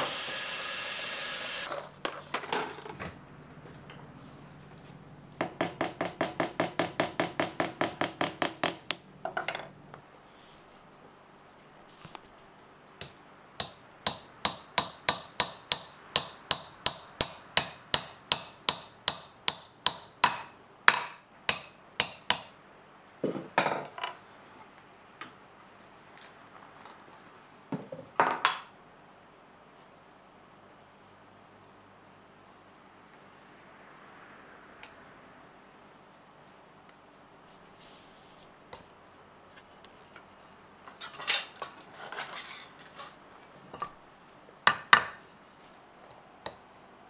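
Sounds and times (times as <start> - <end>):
small hammer tapping a pin: 5.4 - 9.0, 13.0 - 22.6.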